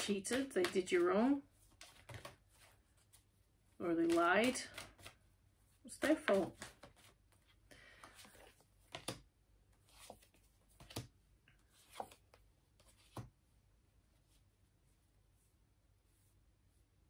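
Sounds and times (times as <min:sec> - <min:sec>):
cards sliding rustle: 0:04.0 - 0:05.2, 0:06.0 - 0:13.3.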